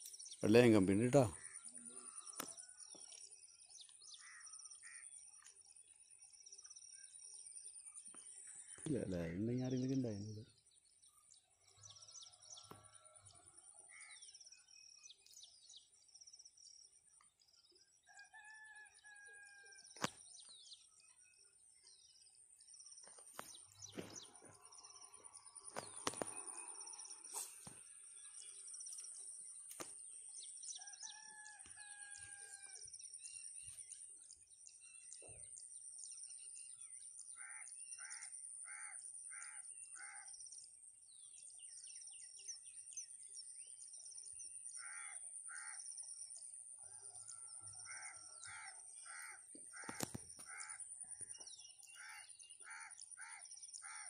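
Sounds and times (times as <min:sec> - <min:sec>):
small birds chirping: 0:20.0 - 0:54.0
bird crowing call: 0:47.0 - 0:50.8.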